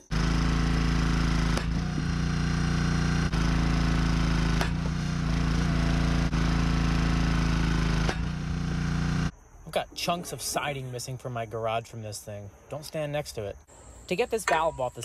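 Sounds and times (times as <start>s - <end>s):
small gas engine running: 0.0s - 9.3s
wood splitting cracks: 4.4s - 5.7s.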